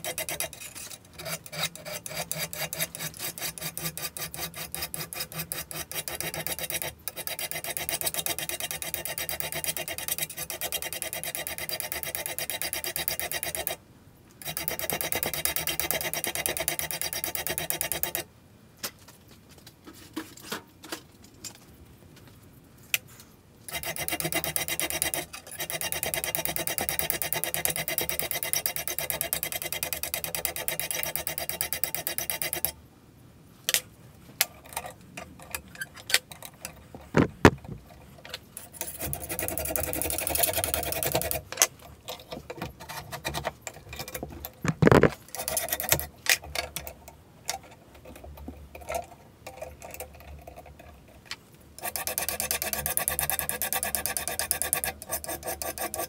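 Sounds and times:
scraping strokes on steel: 0.0 - 13.8, 14.4 - 18.3, 23.7 - 32.8, 38.6 - 51.1, 51.8 - 56.0
knocks and clunks of handling: 33.7 - 38.4, 41.5 - 45.3.

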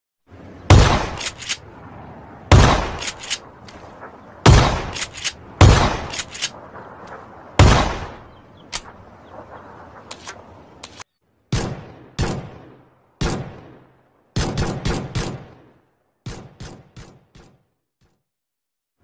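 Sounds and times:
gunshots: 0.7 - 1.6, 2.5 - 3.4, 4.0 - 9.0, 10.9 - 17.6
sharp clicks: 1.1 - 1.6, 2.9 - 3.9, 4.9 - 5.4, 6.0 - 7.2, 8.7 - 9.0.

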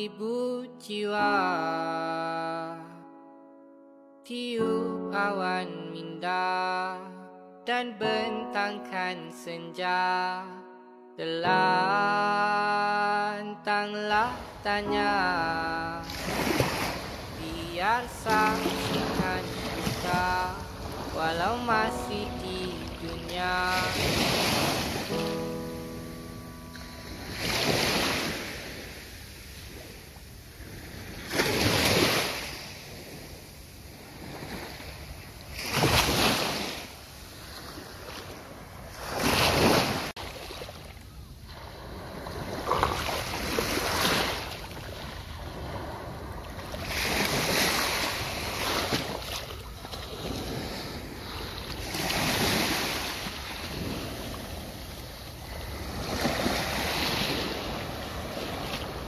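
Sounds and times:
sea waves breaking on beach: 14.1 - 59.0.

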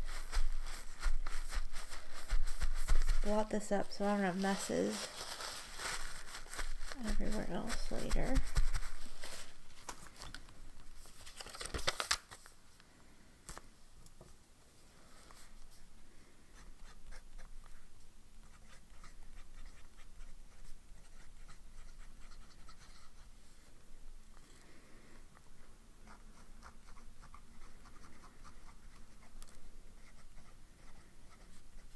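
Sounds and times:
notepad rustling and scraping: 0.0 - 12.6
fountain pen scratching on paper: 18.5 - 23.3, 26.0 - 31.9.

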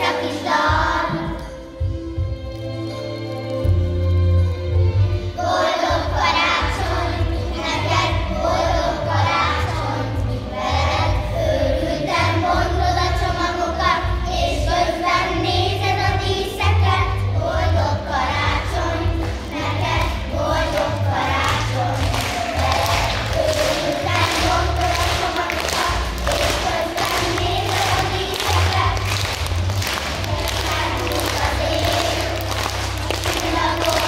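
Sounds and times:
children's choir singing: 0.0 - 1.9, 5.3 - 34.0.

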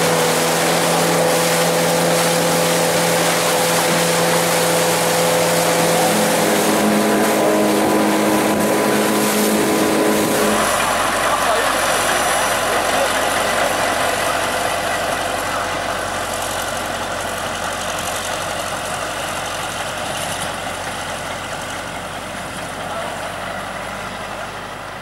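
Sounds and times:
bulldozer diesel engine running: 0.0 - 25.0.

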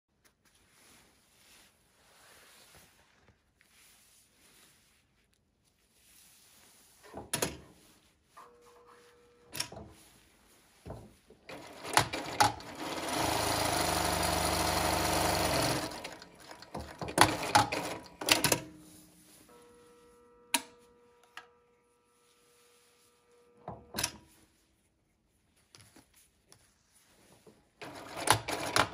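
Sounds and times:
sewing machine running: 11.5 - 18.5, 27.8 - 28.9.

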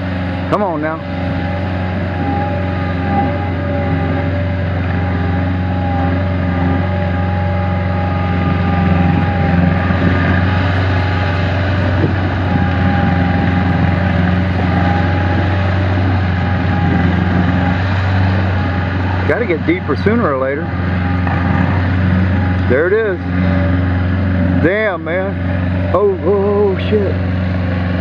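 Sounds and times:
diesel engine running under load: 0.0 - 28.0.

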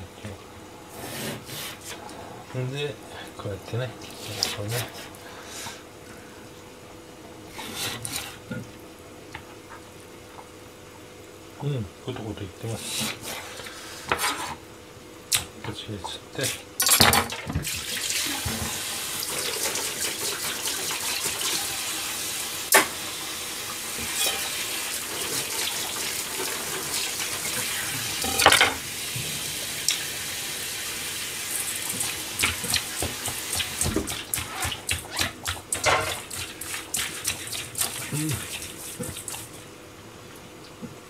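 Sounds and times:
hands mixing meat in metal bowl: 31.8 - 39.7.

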